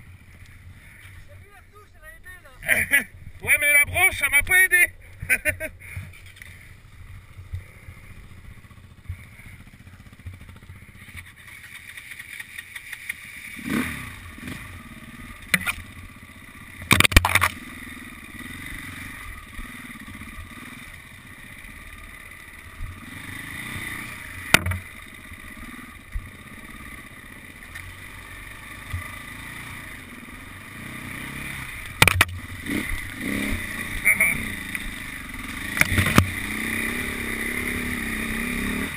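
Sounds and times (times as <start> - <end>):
motorcycle engine running: 0.0 - 38.9
bike knocking over bumps: 16.8 - 17.6, 24.4 - 24.9, 31.9 - 32.4, 35.7 - 36.4.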